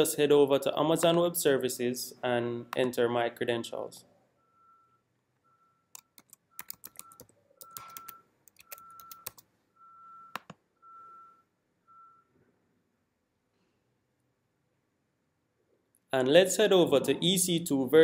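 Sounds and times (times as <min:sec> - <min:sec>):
faint high beep: 0:04.4 - 0:05.9, 0:06.6 - 0:09.2, 0:09.8 - 0:12.4
keyboard typing clicks: 0:05.9 - 0:09.5, 0:10.3 - 0:10.6.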